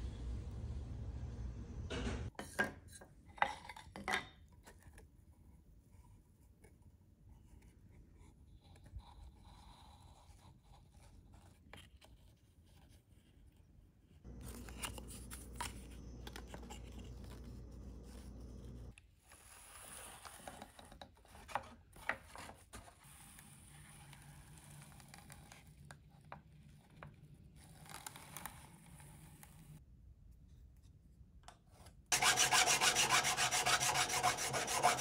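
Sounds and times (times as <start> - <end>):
low steady hum: 0.0 - 2.3, 14.3 - 18.9
faint scrapes and rubs: 4.8 - 21.7, 32.1 - 35.0.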